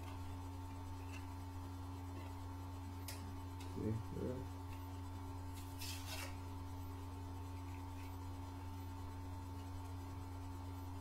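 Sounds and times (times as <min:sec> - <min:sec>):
steady electrical hum: 0:00.0 - 0:11.0
crinkling scrape: 0:05.5 - 0:06.4.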